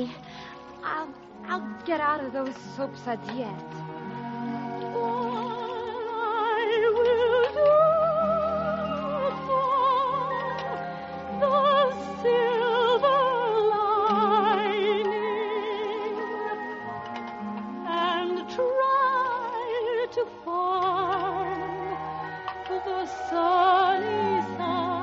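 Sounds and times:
orchestral music with vibrato melody: 0:00.0 - 0:25.0.

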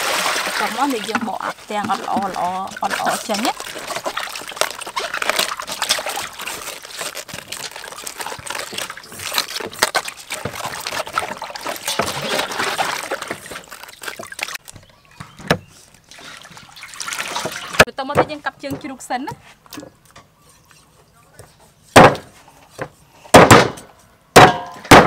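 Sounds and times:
water running off vegetables: 0:00.0 - 0:15.3, 0:16.0 - 0:17.9
water splashing in a metal basin: 0:00.0 - 0:17.9.

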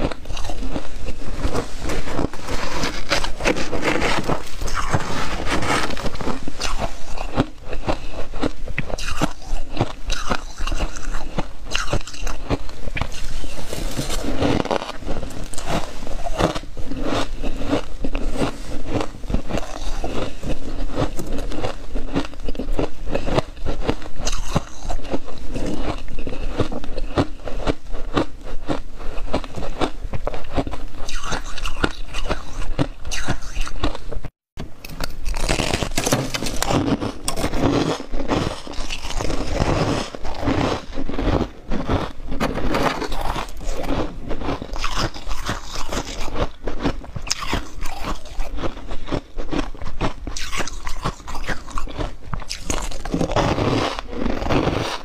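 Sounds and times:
spoon scraping frost: 0:00.0 - 0:23.5, 0:35.0 - 0:49.8, 0:50.4 - 0:55.0
ice being chewed: 0:00.0 - 0:55.0.

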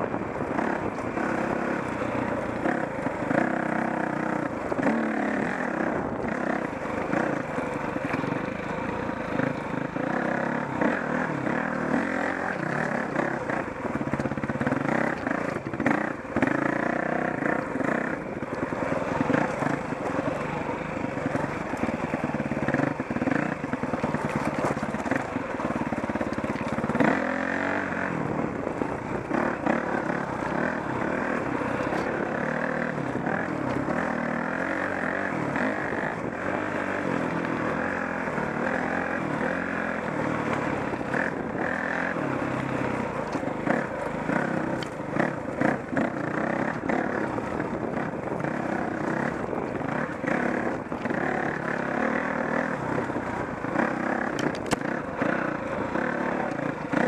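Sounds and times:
dirt bike engine revving: 0:00.0 - 0:57.0
knocks and rattles over rocks: 0:18.4 - 0:27.4, 0:54.2 - 0:54.9.

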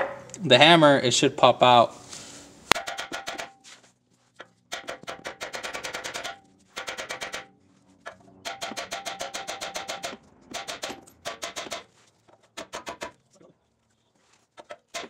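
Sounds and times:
hammer striking metal: 0:00.0 - 0:00.4, 0:02.7 - 0:03.6, 0:04.7 - 0:07.5, 0:08.4 - 0:11.9.

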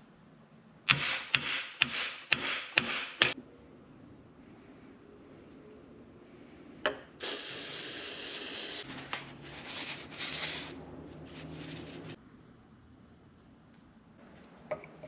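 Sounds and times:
aerosol spray hissing: 0:07.2 - 0:08.9.

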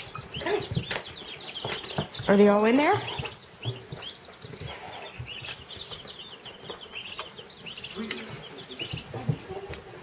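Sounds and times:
baby chicks peeping: 0:00.0 - 0:10.0.

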